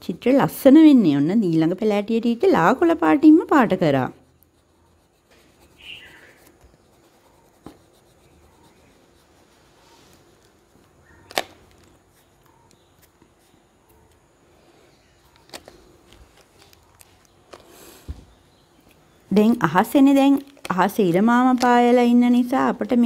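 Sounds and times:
clicks and taps of handling pastels: 0:20.3 - 0:21.8.

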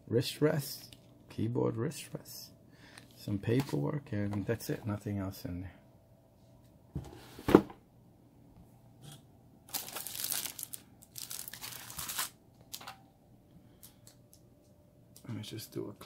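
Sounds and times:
plastic cover crinkling: 0:09.7 - 0:12.9.

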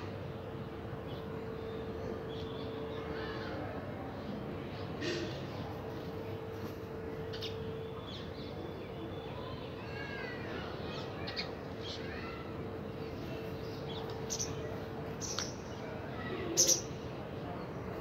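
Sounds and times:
steady faint hum: 0:00.0 - 0:18.0
birds chirping and calling: 0:13.7 - 0:17.0.

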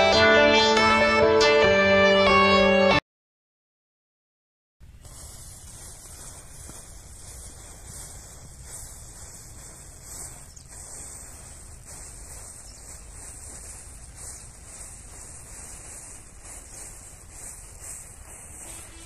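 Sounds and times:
wind rumble on microphone: 0:04.8 - 0:19.0
matches burning with hiss: 0:04.9 - 0:11.6
faint crackling: 0:04.9 - 0:19.0.

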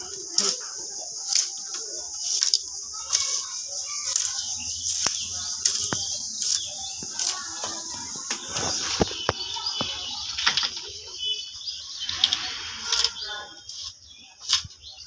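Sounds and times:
bamboo strips rasping: 0:00.0 - 0:10.6.

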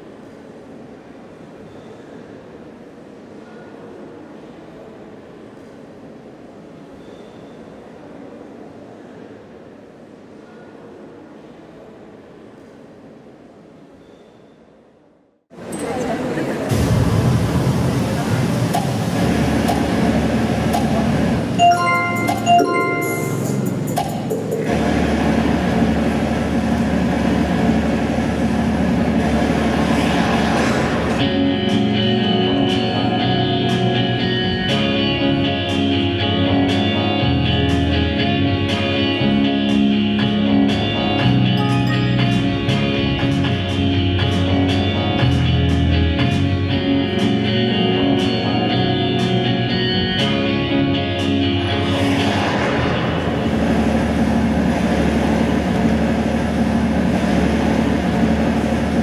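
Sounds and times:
dense wash of sound: 0:16.4 - 0:34.2, 0:50.4 - 0:59.0
steady beat: 0:18.7 - 0:24.8
sustained melodic tones: 0:21.5 - 0:24.7.

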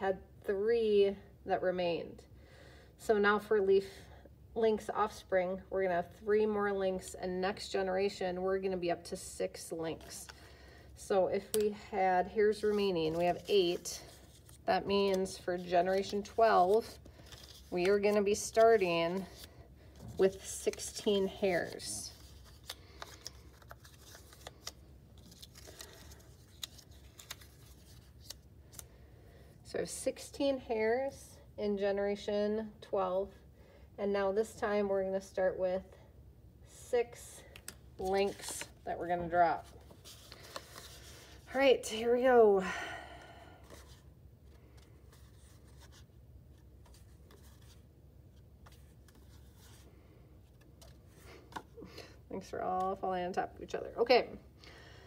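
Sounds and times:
low steady hum: 0:00.0 - 0:55.0
paper rustling: 0:12.5 - 0:28.8, 0:37.6 - 0:38.8, 0:39.6 - 0:41.4.

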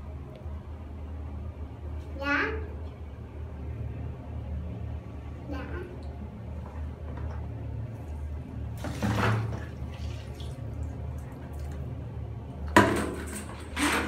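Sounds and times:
water sloshing in a plastic basin: 0:08.7 - 0:12.0
water splashing onto tiled floor: 0:08.8 - 0:11.9.

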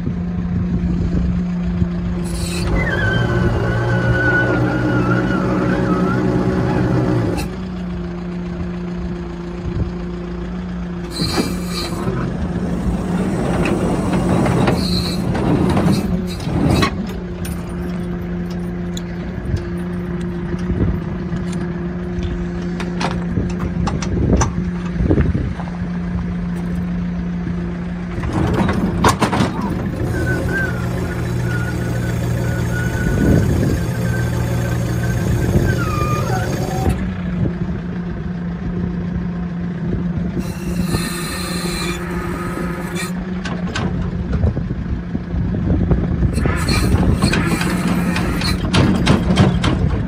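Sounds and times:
truck engine hum: 0:00.0 - 0:50.0
ladder clunks and rattles: 0:22.6 - 0:25.0, 0:28.2 - 0:29.7, 0:48.6 - 0:50.0.

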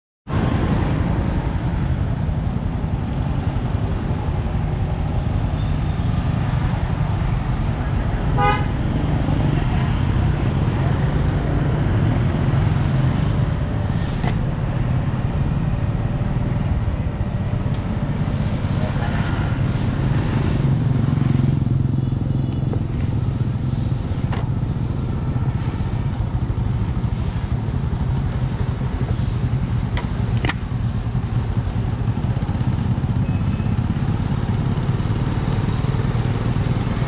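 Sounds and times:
wind and road noise: 0:00.3 - 0:37.0
vehicle horn toot: 0:08.4 - 0:08.7.

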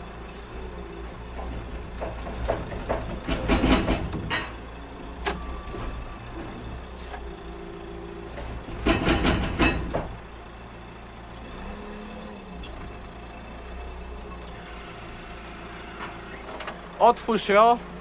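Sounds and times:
diesel engine running: 0:00.0 - 0:18.0
loud rattling and knocking: 0:01.4 - 0:04.6, 0:08.3 - 0:10.2.

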